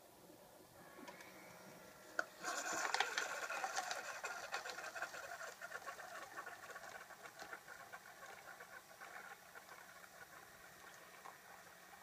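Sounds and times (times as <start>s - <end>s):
coffee maker pump pulsing: 0.8s - 12.0s.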